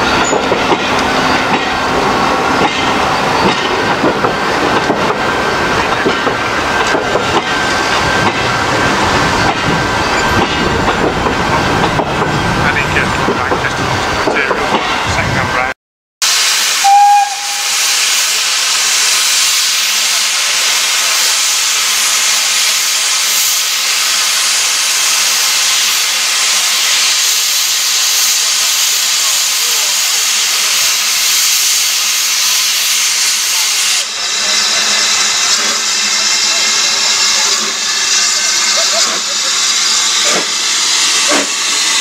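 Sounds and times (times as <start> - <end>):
steam hissing from locomotive: 16.2 - 42.0
steam whistle note: 16.8 - 18.0.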